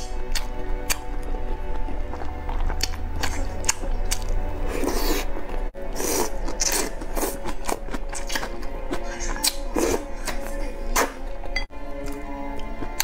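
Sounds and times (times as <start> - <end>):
person biting and chewing: 0.0 - 10.1
faint background music: 0.0 - 13.0
slurping noodles: 2.1 - 11.2.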